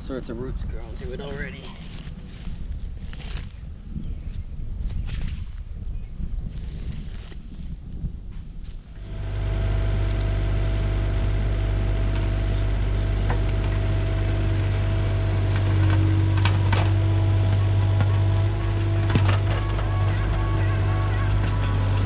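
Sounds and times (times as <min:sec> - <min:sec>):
excavator engine and hydraulics: 0:09.0 - 0:22.0
bucket scraping dirt: 0:10.2 - 0:22.0.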